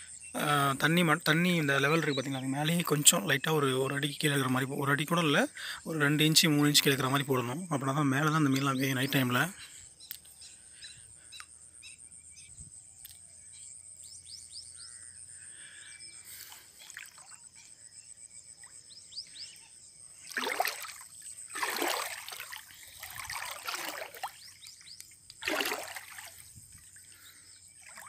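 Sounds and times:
water splashing from wading: 0:16.4 - 0:17.6, 0:20.2 - 0:28.0.

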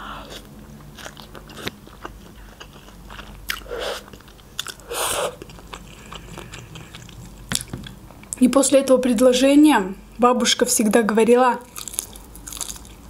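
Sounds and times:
wet chewing: 0:00.2 - 0:08.4, 0:11.6 - 0:13.0.

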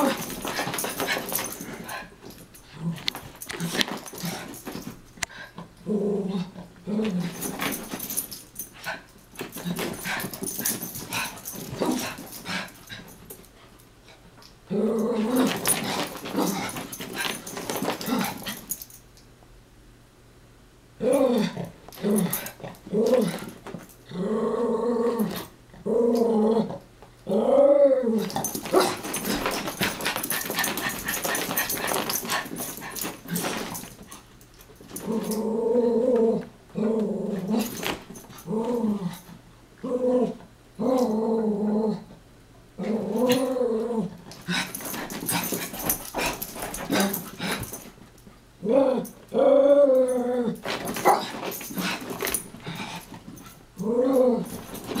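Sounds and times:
scuffling of dogs wrestling: 0:00.0 - 0:05.6, 0:06.4 - 0:14.3, 0:15.0 - 0:19.0, 0:28.2 - 0:35.6, 0:36.2 - 0:39.4, 0:43.1 - 0:48.3, 0:50.5 - 0:55.0
dogs growling and yipping: 0:00.0 - 0:13.4, 0:14.7 - 0:18.9, 0:21.0 - 0:34.2, 0:34.8 - 0:42.2, 0:42.8 - 0:48.0, 0:48.6 - 0:55.0.

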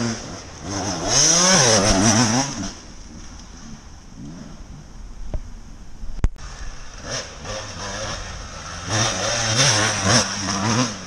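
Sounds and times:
dirt bike engine revving: 0:00.0 - 0:03.0, 0:06.4 - 0:11.0.

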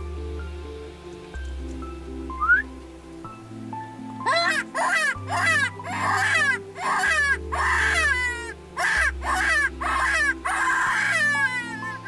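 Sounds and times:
low background music: 0:00.0 - 0:12.0
jackals howling: 0:04.2 - 0:12.0.

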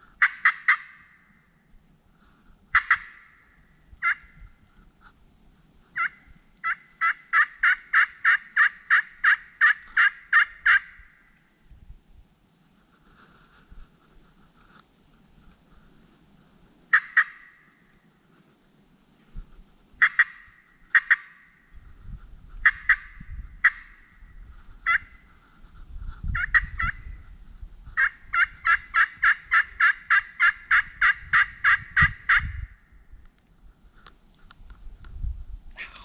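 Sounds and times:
turkey yelping: 0:00.2 - 0:01.0, 0:02.8 - 0:03.3, 0:04.0 - 0:04.3, 0:06.0 - 0:11.0, 0:16.9 - 0:17.6, 0:24.9 - 0:25.1, 0:28.0 - 0:32.6.

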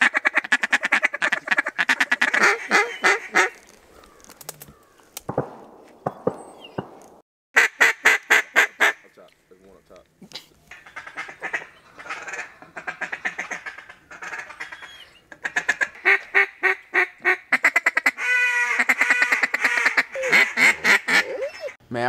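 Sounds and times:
duck call quacking: 0:00.0 - 0:03.6, 0:07.6 - 0:09.1, 0:10.7 - 0:21.3.

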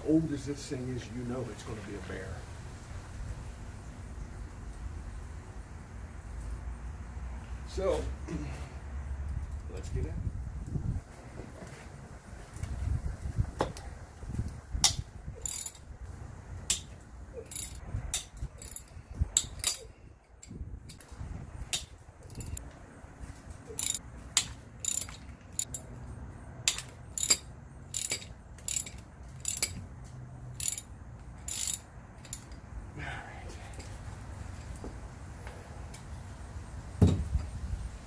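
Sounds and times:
ratchet wrench clicking: 0:14.8 - 0:15.9, 0:16.7 - 0:21.0, 0:23.7 - 0:25.9, 0:26.6 - 0:29.8, 0:30.5 - 0:32.6.

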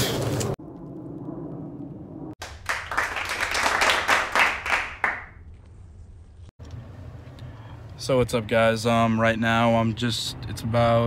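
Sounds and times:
rapid hand clapping: 0:02.4 - 0:05.4.

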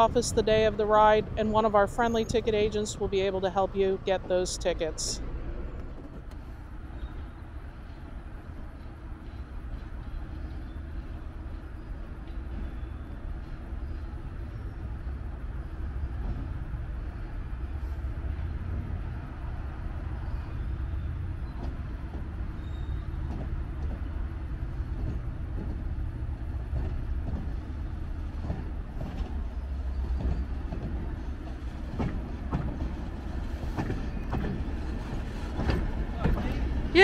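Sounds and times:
train rumbling past: 0:00.0 - 0:37.0
wheel clicks at rail joints: 0:20.8 - 0:37.0.

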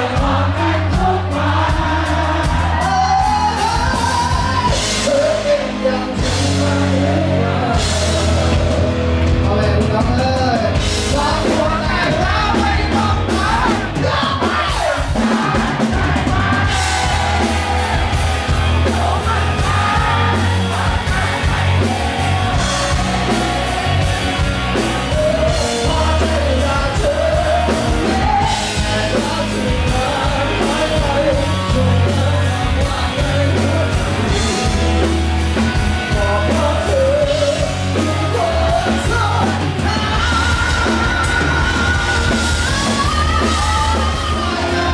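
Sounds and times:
man singing: 0:00.0 - 0:18.0, 0:18.6 - 0:44.9
bass guitar: 0:00.0 - 0:44.9
drums: 0:00.0 - 0:44.9
electric guitar: 0:00.0 - 0:44.9.

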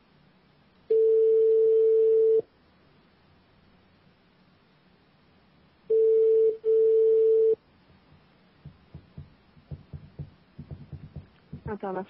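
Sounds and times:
telephone ringback tone: 0:00.9 - 0:02.4, 0:05.9 - 0:07.6.

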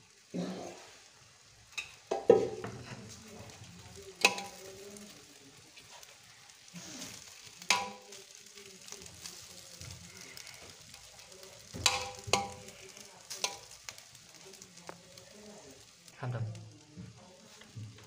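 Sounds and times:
faint steady hiss: 0:00.0 - 0:18.0
spoon stirring rice in metal pot: 0:01.7 - 0:06.3, 0:07.0 - 0:14.2
spoon clinking on metal pot: 0:07.7 - 0:08.0.

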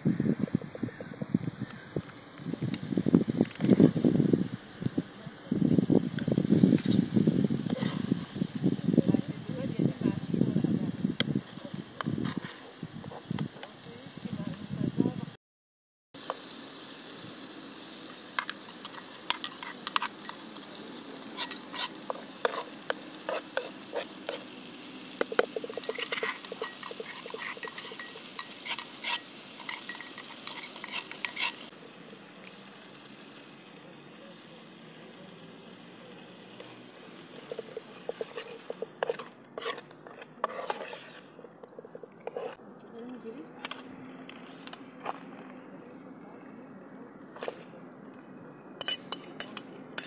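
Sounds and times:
pan sizzling: 0:00.0 - 0:14.7, 0:16.2 - 0:47.7, 0:48.7 - 0:50.0
metal spoon clinking against pan: 0:25.2 - 0:31.6, 0:48.8 - 0:50.0.

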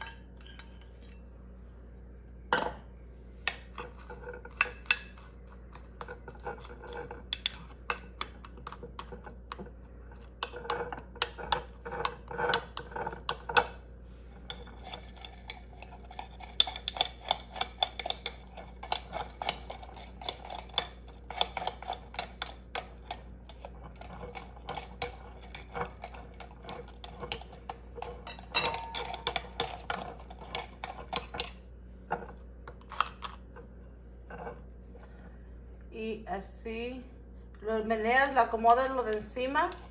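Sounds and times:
metal spoon clinking on glass jars: 0:28.2 - 0:30.2.

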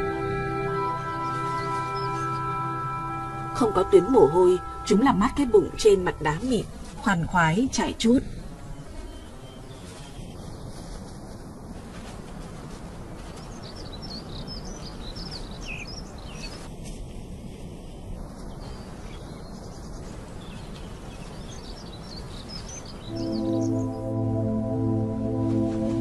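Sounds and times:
steady outdoor hiss: 0:00.0 - 0:26.0
small birds twittering: 0:00.8 - 0:03.3, 0:13.2 - 0:16.7, 0:18.4 - 0:24.0
loud music: 0:23.2 - 0:26.0.

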